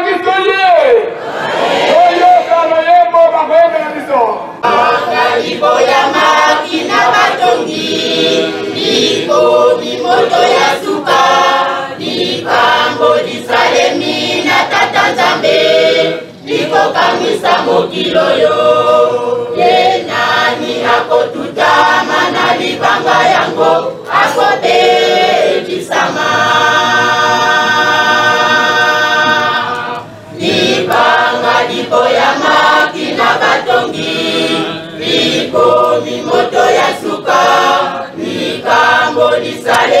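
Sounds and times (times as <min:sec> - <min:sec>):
crowd singing a hymn: 0:01.0 - 0:02.7, 0:04.0 - 0:40.0.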